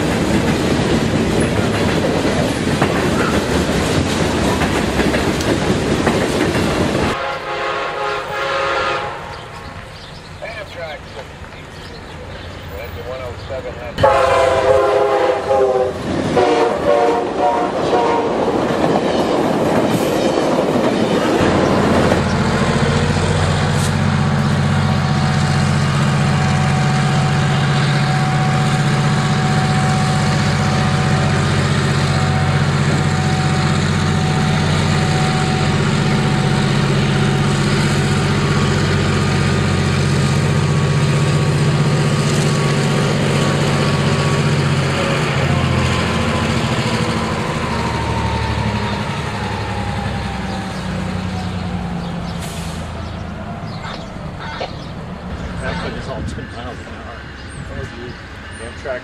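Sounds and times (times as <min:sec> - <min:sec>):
diesel locomotive engine running: 0:00.0 - 0:59.0
rush of passing train: 0:00.0 - 0:59.0
train horn: 0:07.1 - 0:09.8, 0:14.0 - 0:18.5, 0:26.1 - 0:37.5.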